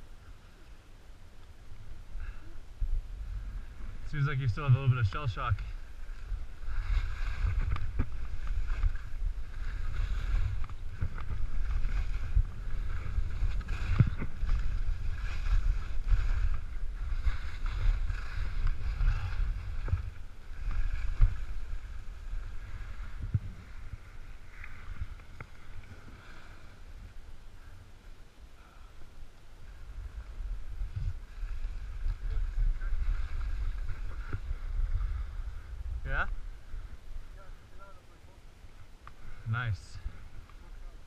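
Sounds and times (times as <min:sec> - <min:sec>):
wind buffeting microphone: 0:01.5 - 0:27.7, 0:29.6 - 0:37.7
skis scraping over snow: 0:03.3 - 0:26.8, 0:29.7 - 0:35.7.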